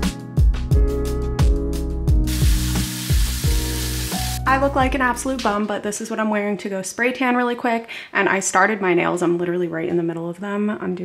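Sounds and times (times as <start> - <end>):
background music with steady beat: 0.0 - 5.7
shower head spraying water: 2.2 - 4.5.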